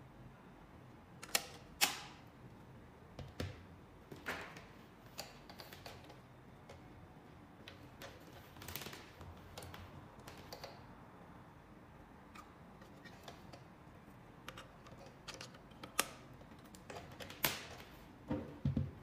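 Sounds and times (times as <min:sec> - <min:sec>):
speakers knocking on wooden table: 0:18.3 - 0:18.9.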